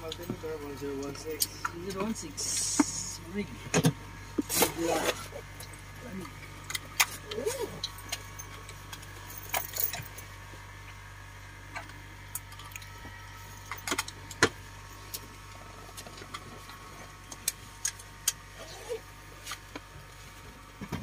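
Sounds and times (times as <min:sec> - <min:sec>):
propeller plane cabin hum: 0:00.0 - 0:21.0.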